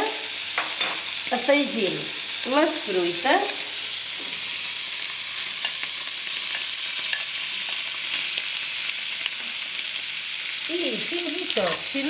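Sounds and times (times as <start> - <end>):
meat sizzling in oil: 0.0 - 12.0.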